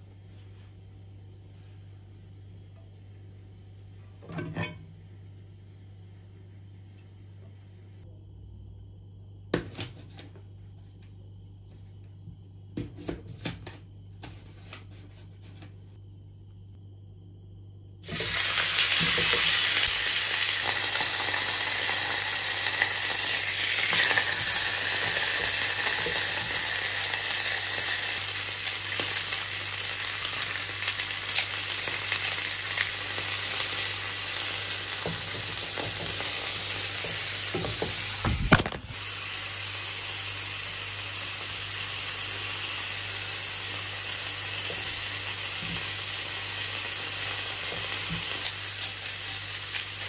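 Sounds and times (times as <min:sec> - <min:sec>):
meat sizzling in a frying pan: 0:18.0 - 0:50.0.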